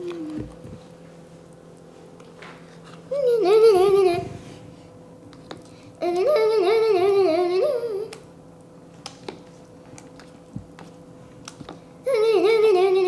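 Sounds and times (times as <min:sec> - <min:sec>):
girl's wordless sing-song humming: 0:00.0 - 0:00.7, 0:03.1 - 0:04.8, 0:05.9 - 0:08.3, 0:12.0 - 0:13.0.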